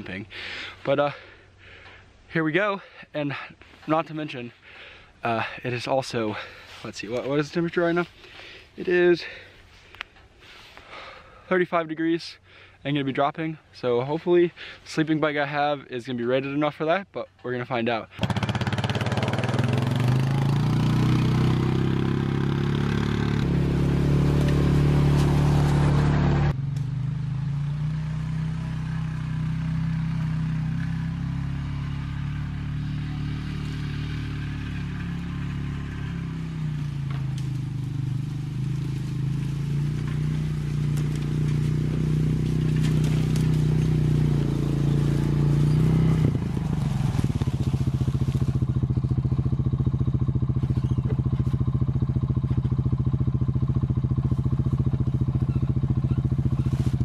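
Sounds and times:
atv engine running: 0:18.1 - 0:57.0.

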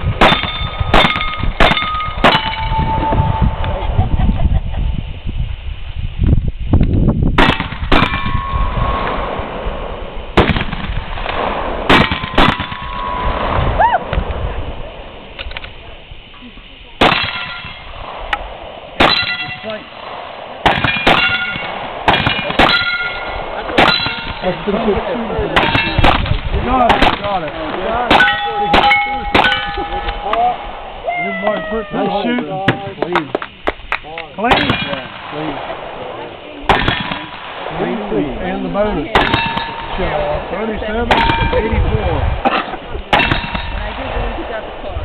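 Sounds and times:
gunshots: 0:00.1 - 0:02.9, 0:07.4 - 0:14.4, 0:17.0 - 0:30.9, 0:34.4 - 0:38.2, 0:39.0 - 0:44.3
steel target clanging: 0:00.2 - 0:03.1, 0:17.0 - 0:18.2, 0:19.0 - 0:20.1, 0:20.7 - 0:24.9, 0:25.5 - 0:30.7, 0:39.2 - 0:40.2, 0:41.1 - 0:41.8, 0:42.5 - 0:43.9.

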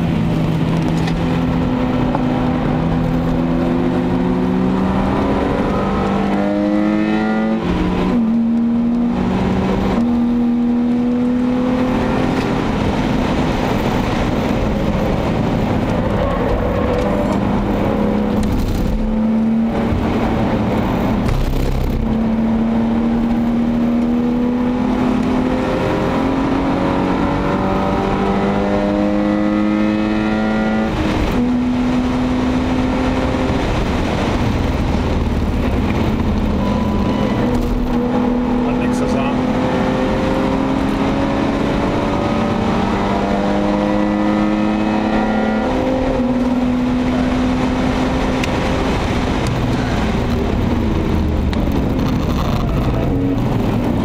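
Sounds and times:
car engine accelerating hard: 0:00.0 - 0:54.0
wind noise: 0:00.0 - 0:54.0
tyre noise: 0:49.2 - 0:54.0.

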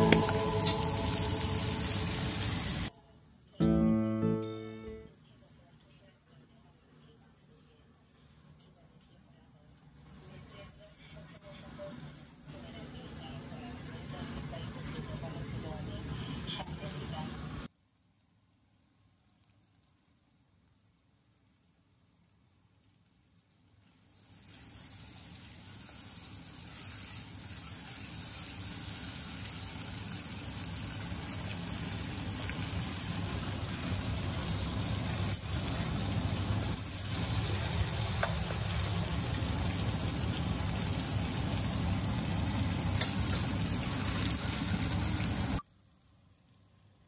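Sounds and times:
curry simmering and bubbling: 0:17.7 - 0:47.0.

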